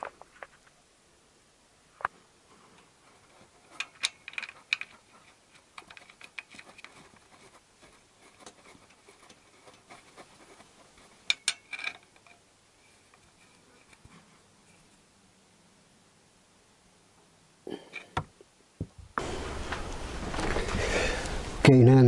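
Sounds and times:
spanner clinking on bolts: 11.3s - 12.4s.

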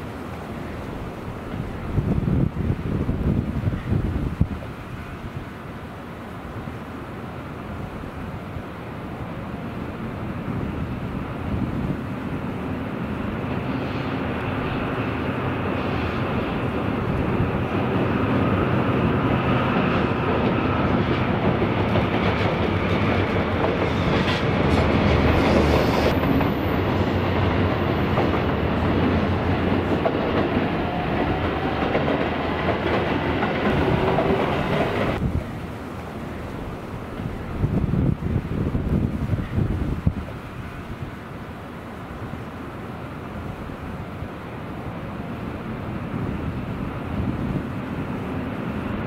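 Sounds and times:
low locomotive engine drone: 0.0s - 49.0s
train wheels rumbling and clattering: 10.3s - 40.8s.

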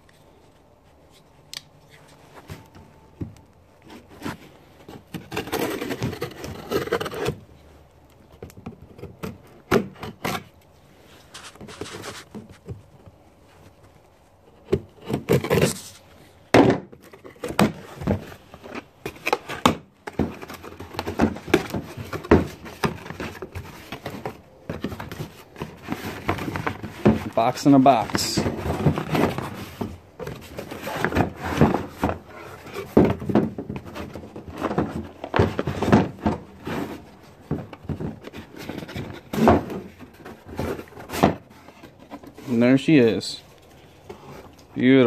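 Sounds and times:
knife cutting cardboard: 3.8s - 7.4s, 8.8s - 10.5s, 14.6s - 16.1s
knocks and thumps: 28.0s - 42.4s.

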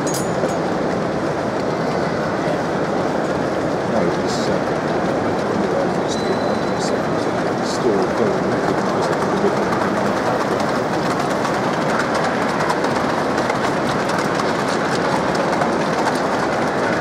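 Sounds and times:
model train wheels rattling: 4.3s - 17.0s.

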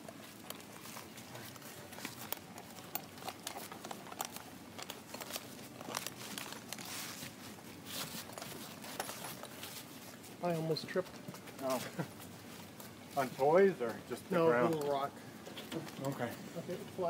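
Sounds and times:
footsteps crunching on dry leaves: 5.3s - 13.4s.

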